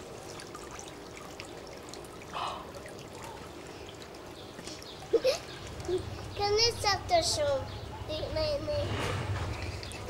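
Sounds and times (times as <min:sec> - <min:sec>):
water trickling from hose nozzle: 0:00.0 - 0:06.4.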